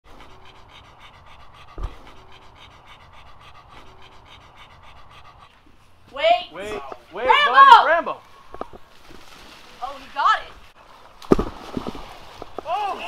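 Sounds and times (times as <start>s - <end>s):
dog panting: 0.1s - 8.0s
low thump: 1.7s - 2.1s.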